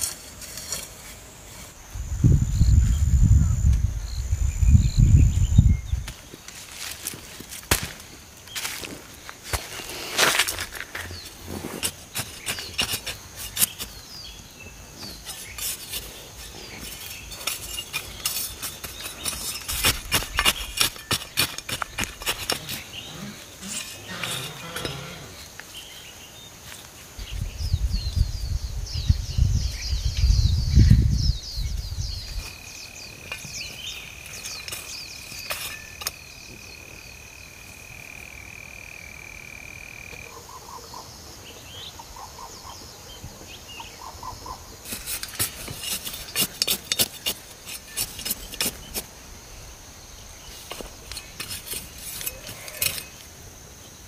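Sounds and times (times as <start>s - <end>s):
metal trowel scraping soil: 0.0s - 1.9s, 8.5s - 26.0s, 32.4s - 36.6s, 44.8s - 49.1s, 50.4s - 53.3s
constant high hiss: 0.0s - 54.0s.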